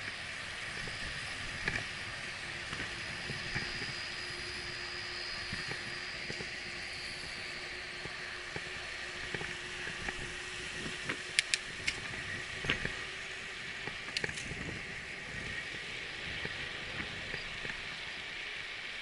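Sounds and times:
bicycle tyres hissing: 0.0 - 19.0
bike rattling clicks: 11.1 - 12.0, 13.8 - 14.7.

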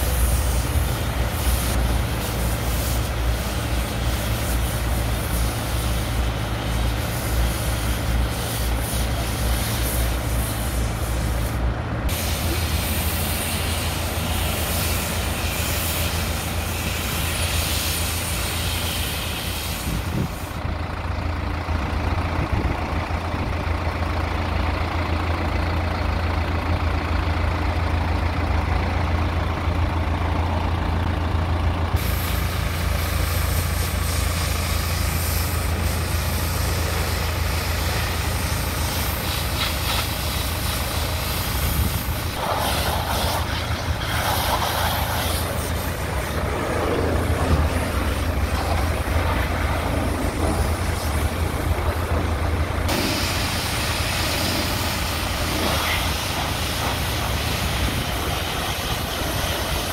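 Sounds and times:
pressure washer hissing: 0.0 - 20.6, 32.0 - 59.9
tractor diesel engine idling: 0.0 - 59.9.

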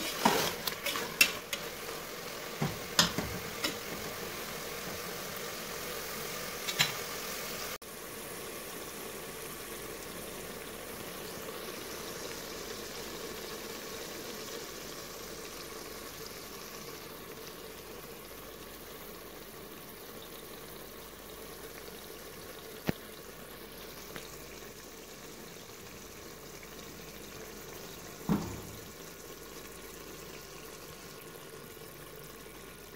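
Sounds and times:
curry bubbling in a pot: 0.0 - 32.9.

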